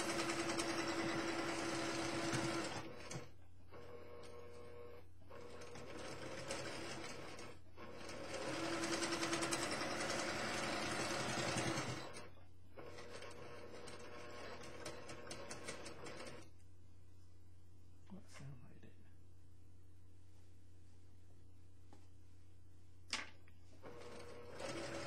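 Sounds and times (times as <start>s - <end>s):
sewing machine stitching: 0.0s - 16.5s, 23.8s - 25.0s.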